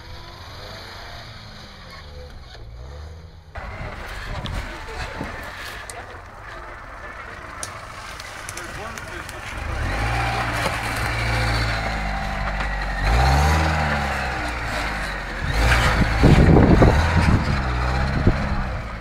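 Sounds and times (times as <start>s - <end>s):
car engine revving under load: 0.0s - 19.0s
loud rumbling thumps: 15.4s - 18.8s.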